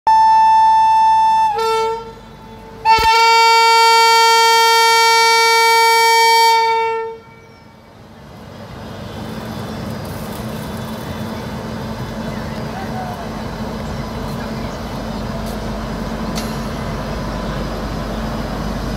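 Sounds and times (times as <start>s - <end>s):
locomotive air horn blasts: 0.1s - 7.6s
train rumble starting off: 0.1s - 18.9s.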